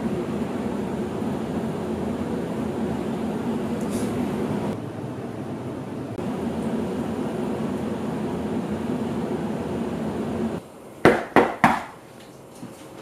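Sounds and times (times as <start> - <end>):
steady low hum: 0.0 - 13.0
knocks on a door: 11.1 - 12.0.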